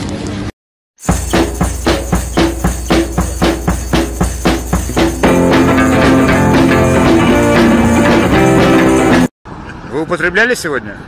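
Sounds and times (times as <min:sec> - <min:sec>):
band playing held notes: 0:01.0 - 0:09.3
steady percussive beat: 0:01.0 - 0:09.3.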